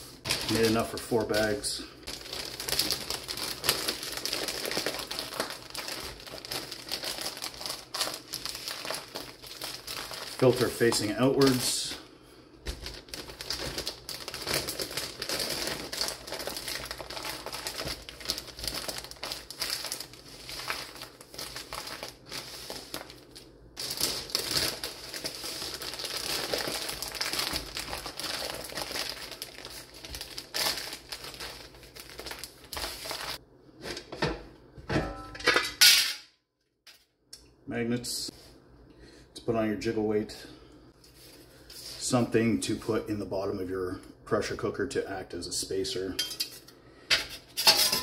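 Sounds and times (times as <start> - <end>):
plastic bags crinkling: 0.2 - 12.0, 12.7 - 33.4.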